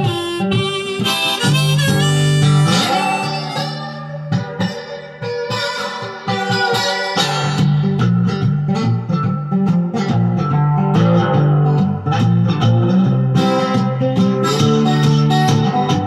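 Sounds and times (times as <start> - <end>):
harmonica playing: 0.0 - 7.8, 14.3 - 16.0
acoustic guitar playing: 0.0 - 16.0.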